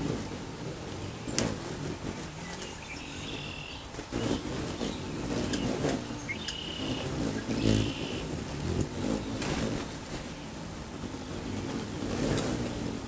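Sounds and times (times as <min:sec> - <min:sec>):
hummingbird wings humming: 0:00.0 - 0:13.0
squeaky bird chattering: 0:05.5 - 0:08.3.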